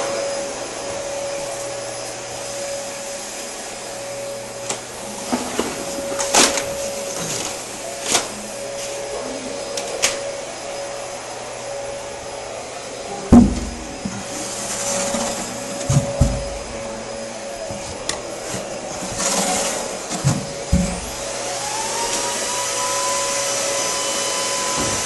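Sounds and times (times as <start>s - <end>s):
machine whirring: 0.0s - 25.0s
loud thump: 13.3s - 13.8s, 15.9s - 16.8s, 20.2s - 21.2s.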